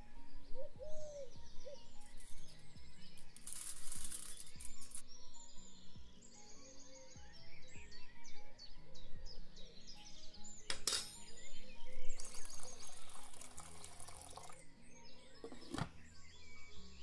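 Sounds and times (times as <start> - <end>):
soft background music: 0.0 - 17.0
water poured into metal pot: 12.1 - 14.6.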